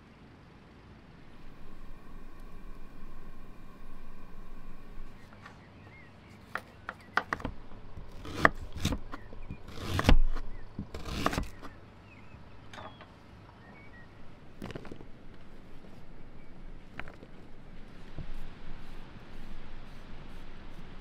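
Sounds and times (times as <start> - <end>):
knife cutting on wooden board: 6.4 - 11.8.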